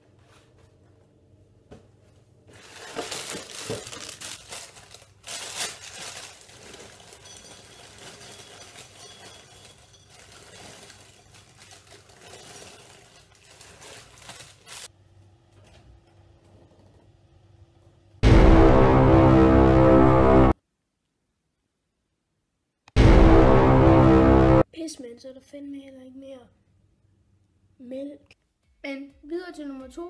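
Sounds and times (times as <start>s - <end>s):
plastic bag crinkling: 2.5s - 14.9s.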